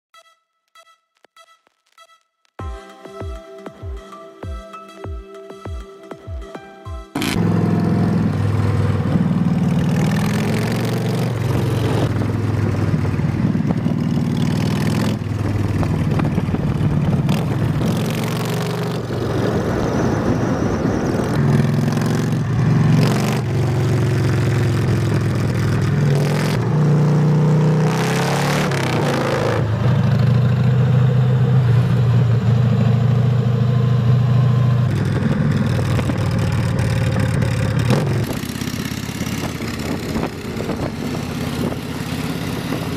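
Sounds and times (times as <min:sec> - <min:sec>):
motorcycle engines revving: 0:07.2 - 0:42.9.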